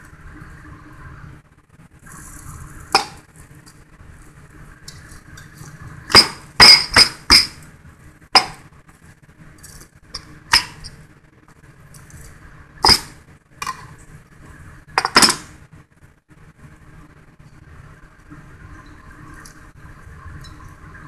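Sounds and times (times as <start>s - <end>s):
knife striking cutting board: 6.1s - 7.6s, 8.4s - 8.6s.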